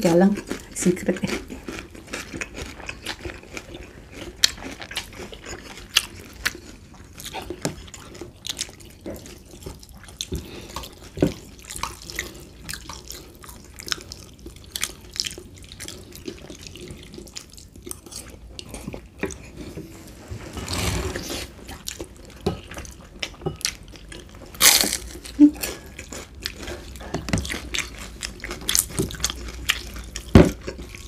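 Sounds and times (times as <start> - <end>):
slurping noodles: 20.1 - 21.6.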